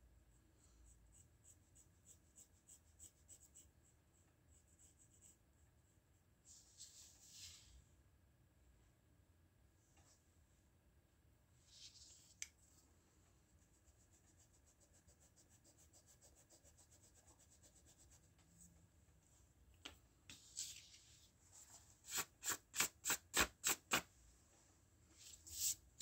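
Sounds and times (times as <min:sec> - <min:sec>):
eraser rubbing on paper: 0:22.0 - 0:24.0.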